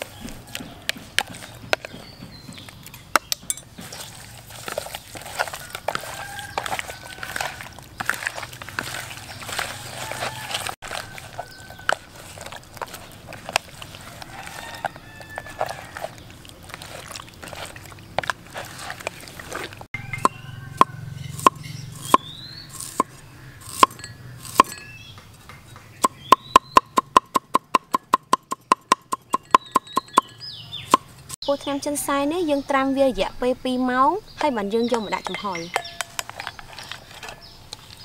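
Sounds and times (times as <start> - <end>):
hands mixing meat in plastic basin: 0.0 - 20.0, 34.4 - 38.0
cleaver chopping on wooden board: 20.2 - 30.3.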